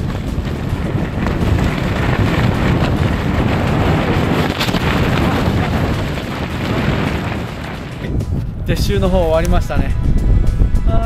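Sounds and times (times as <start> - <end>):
tent fabric rustling: 0.0 - 8.0
wind buffeting microphone: 0.0 - 11.0.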